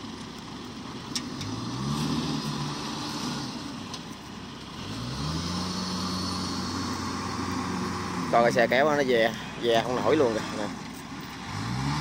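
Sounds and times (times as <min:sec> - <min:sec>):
machine engine revving under load: 0:04.8 - 0:08.4, 0:11.4 - 0:12.0.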